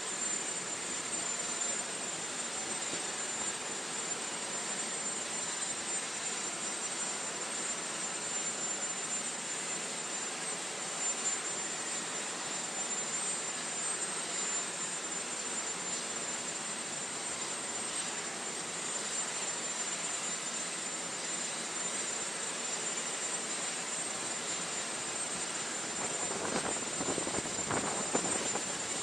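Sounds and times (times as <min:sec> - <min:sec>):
aircraft turbine idling: 0:00.0 - 0:29.0
high whine: 0:25.2 - 0:29.0.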